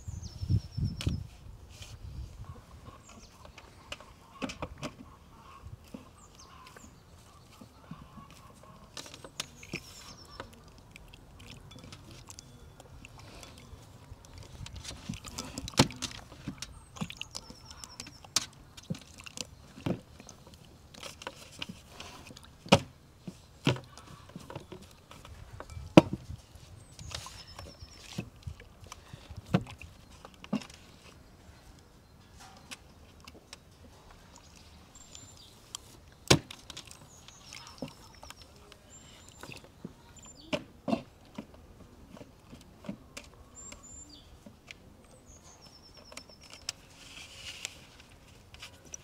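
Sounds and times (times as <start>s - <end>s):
water sloshing in bowl: 6.0s - 30.9s, 34.3s - 40.3s.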